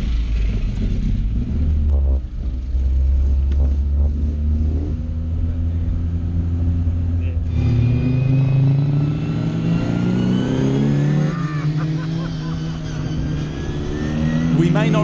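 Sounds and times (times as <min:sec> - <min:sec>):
car engine at low revs: 0:00.0 - 0:07.5.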